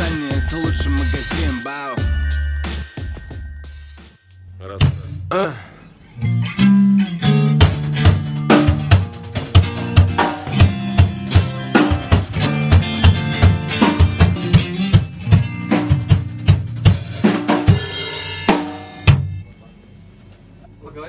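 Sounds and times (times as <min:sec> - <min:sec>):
band playing: 0:00.0 - 0:04.0, 0:06.5 - 0:19.4
drum kit beat: 0:00.0 - 0:05.6, 0:06.7 - 0:19.5.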